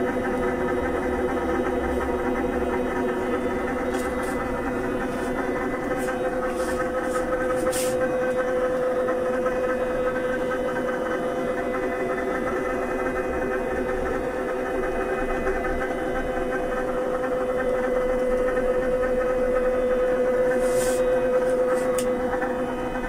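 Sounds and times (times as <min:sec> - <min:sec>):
vibration machine motor hum: 0:00.0 - 0:23.0.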